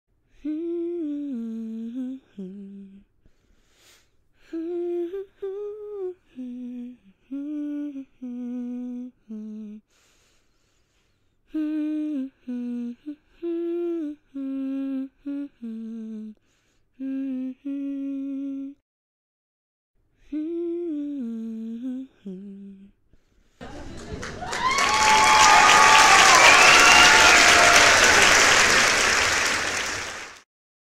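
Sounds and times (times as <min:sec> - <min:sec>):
child humming a slow tune: 0:00.3 - 0:03.0, 0:04.4 - 0:09.9, 0:11.5 - 0:16.4, 0:17.0 - 0:18.8, 0:20.2 - 0:23.0.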